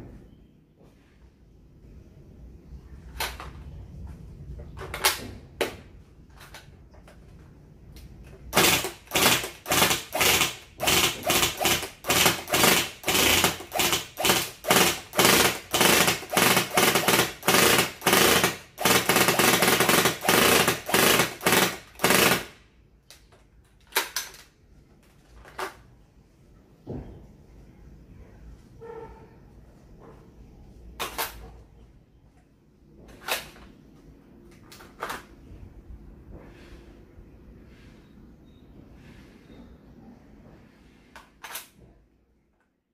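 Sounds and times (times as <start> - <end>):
airsoft gun firing: 8.5 - 22.6.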